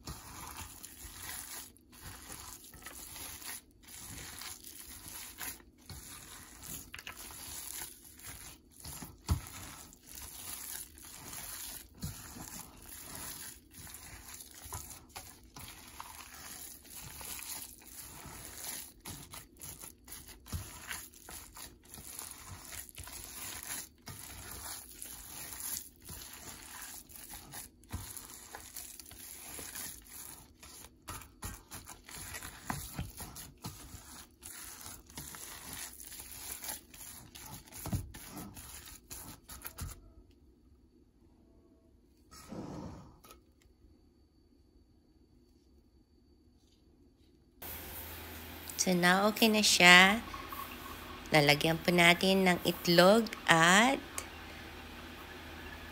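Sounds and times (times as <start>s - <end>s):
plastic glove crinkling: 0.0s - 40.0s
wet squishing of kneaded meat: 0.0s - 40.2s, 47.6s - 55.9s.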